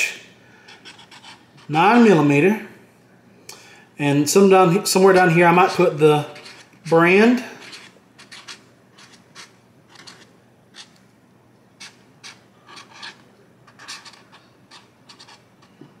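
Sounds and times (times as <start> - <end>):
marker scratching on tape: 0.8 - 1.8, 5.2 - 11.0, 11.8 - 15.7.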